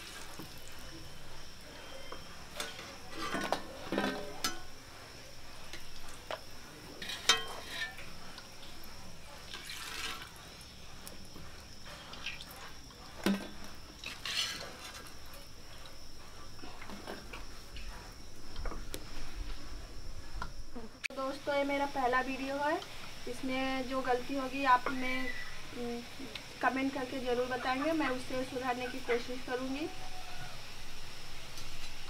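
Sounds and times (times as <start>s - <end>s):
oil sizzling while deep-frying: 0.0s - 19.6s, 20.7s - 32.0s
metal spoon clinking on pan: 7.0s - 8.1s.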